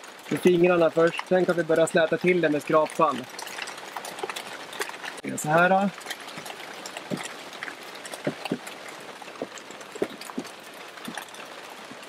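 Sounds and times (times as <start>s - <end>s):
steady rain falling: 0.0s - 12.0s
irregular taps: 6.3s - 11.4s.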